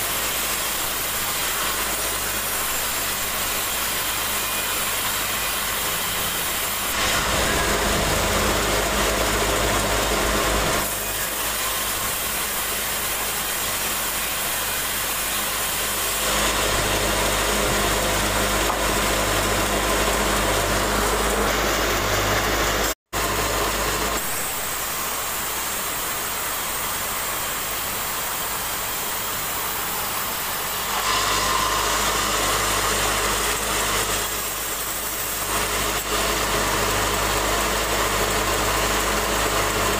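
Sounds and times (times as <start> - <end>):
band sawmill cutting timber: 0.0 - 39.9.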